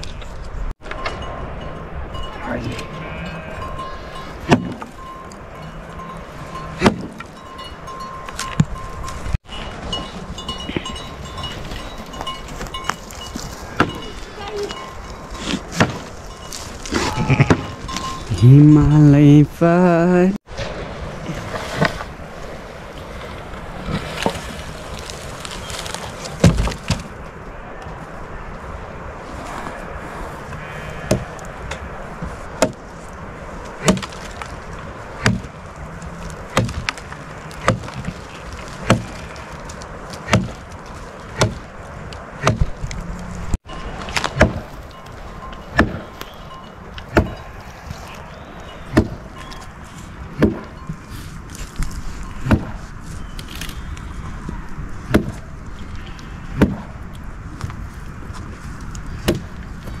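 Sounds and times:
blade chopping wood: 4.5 - 4.9, 6.8 - 7.3, 15.5 - 16.1, 26.3 - 27.1, 32.6 - 32.8, 33.8 - 34.4, 35.2 - 35.6, 36.5 - 38.2, 38.8 - 39.2, 40.1 - 40.7, 41.3 - 41.7, 42.4 - 42.8, 44.0 - 44.7, 45.7 - 46.3, 47.1 - 47.4, 48.9 - 49.2, 50.4 - 50.7, 52.4 - 52.8, 55.1 - 55.4, 56.5 - 56.9, 59.2 - 59.5.

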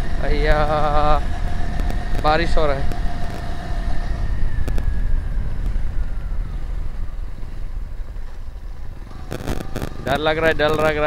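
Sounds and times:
motorcycle engine running: 0.0 - 11.0
wind rush on microphone: 0.0 - 11.0.

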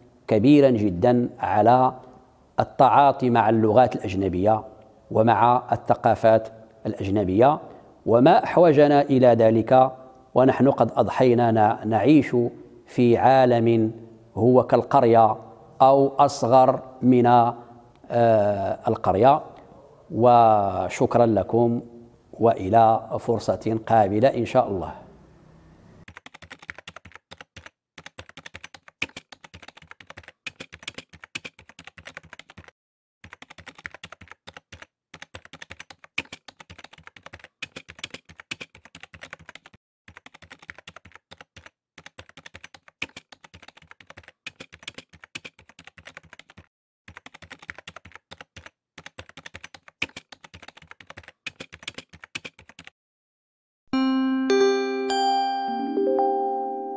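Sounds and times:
fast keyboard typing: 26.0 - 53.0
chiming musical tone: 54.0 - 56.9.

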